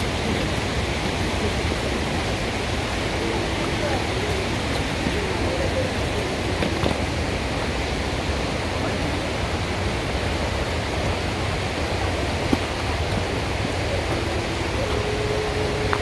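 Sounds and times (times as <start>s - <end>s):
steady rushing noise: 0.0s - 16.0s
faint steady tone: 10.9s - 16.0s.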